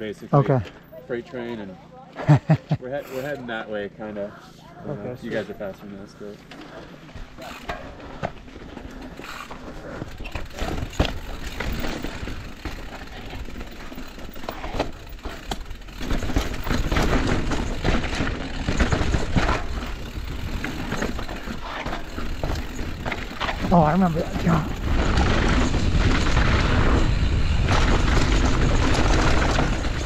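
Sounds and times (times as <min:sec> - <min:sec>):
bike knocks and rattles: 0:06.4 - 0:30.0
bike tyres crunching over dirt: 0:06.4 - 0:30.0.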